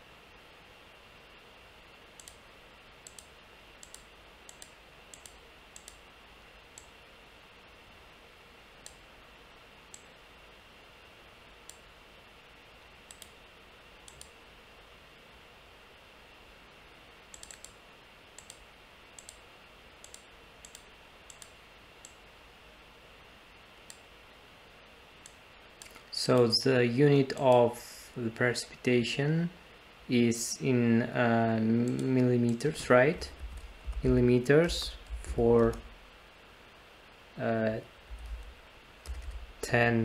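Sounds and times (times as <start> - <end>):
faint steady hiss: 0.0 - 40.0
computer mouse clicking: 2.2 - 2.4, 3.0 - 6.0, 8.8 - 9.0, 9.9 - 10.1, 13.1 - 13.4, 14.0 - 14.4, 17.3 - 17.8, 18.4 - 19.4, 20.0 - 22.2, 25.2 - 26.1, 31.8 - 32.6, 38.2 - 39.5.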